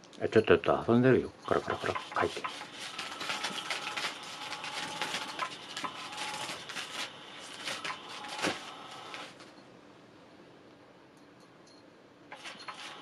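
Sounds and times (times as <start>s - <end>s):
toy wand scratching and rattling: 1.4s - 9.4s, 12.3s - 13.0s
faint motor whir: 1.5s - 9.7s, 11.6s - 13.0s.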